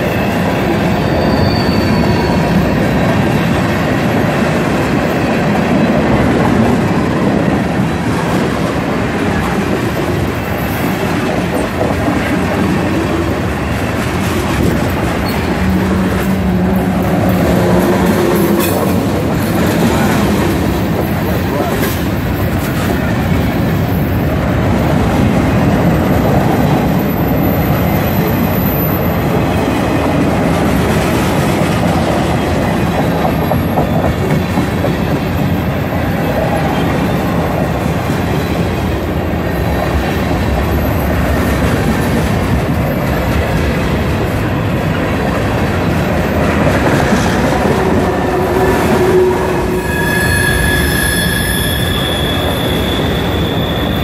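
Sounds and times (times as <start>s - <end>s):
train wheels squealing: 0.0s - 3.5s, 15.2s - 16.5s, 26.6s - 30.0s, 33.1s - 41.6s, 48.3s - 54.0s
train wheels rolling on rails: 0.0s - 54.0s.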